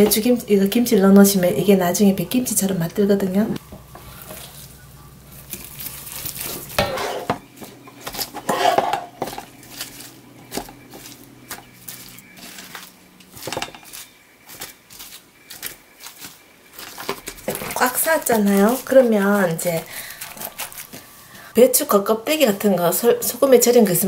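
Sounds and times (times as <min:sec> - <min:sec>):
wet rustles: 0:04.0 - 0:06.8, 0:09.2 - 0:21.4.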